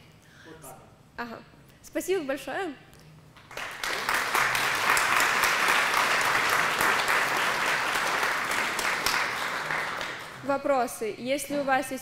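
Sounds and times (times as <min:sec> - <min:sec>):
audience applauding: 0:03.4 - 0:10.5.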